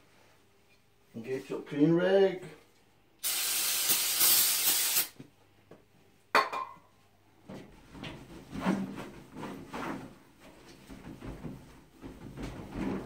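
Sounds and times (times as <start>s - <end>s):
aerosol spray hiss: 3.2s - 5.2s.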